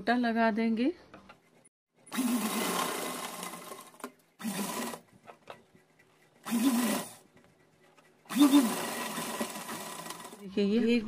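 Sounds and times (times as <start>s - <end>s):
sewing machine stitching: 2.1s - 5.2s, 6.3s - 10.5s.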